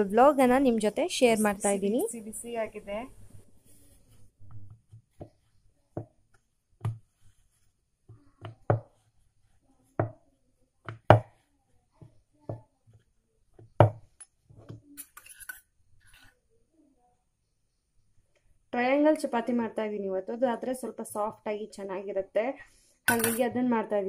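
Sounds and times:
rolling pin knocking on wooden board: 0:08.4 - 0:09.0, 0:10.8 - 0:11.4, 0:13.6 - 0:14.8.

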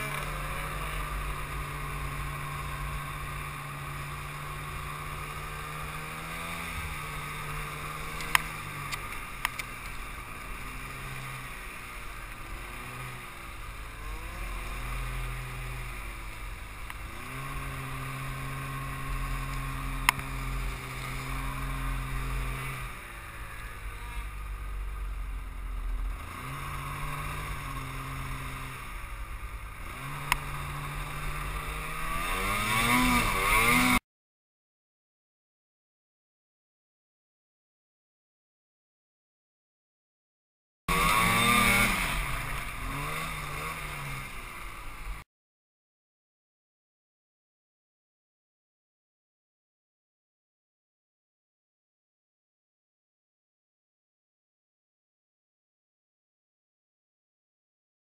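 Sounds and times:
snowmobile engine revving: 0:00.0 - 0:34.0, 0:40.9 - 0:45.2.

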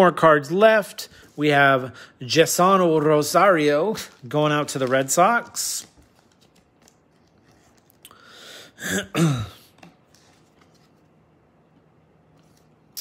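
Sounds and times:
man clearing his throat: 0:08.8 - 0:09.8.

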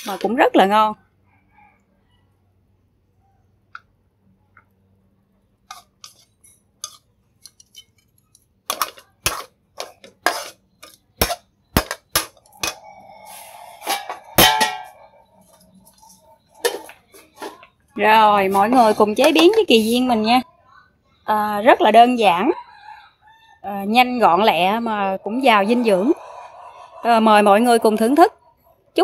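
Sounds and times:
metal spatula scraping a wok: 0:05.7 - 0:08.0, 0:08.7 - 0:17.6.

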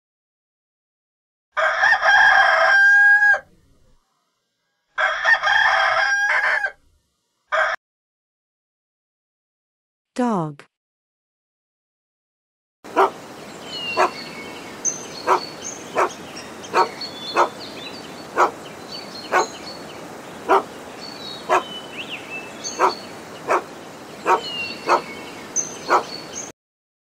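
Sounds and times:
dog barking: 0:07.6 - 0:07.8, 0:12.9 - 0:13.2, 0:14.0 - 0:14.2, 0:15.2 - 0:17.6, 0:18.3 - 0:18.6, 0:19.3 - 0:19.6, 0:20.4 - 0:20.7, 0:21.5 - 0:21.7, 0:22.8 - 0:25.1, 0:25.8 - 0:26.2.

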